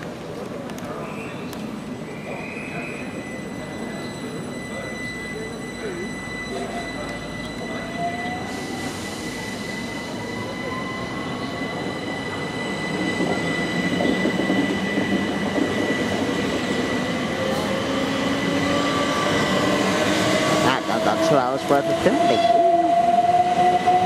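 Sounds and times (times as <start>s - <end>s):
electric train whine: 0.2s - 24.0s.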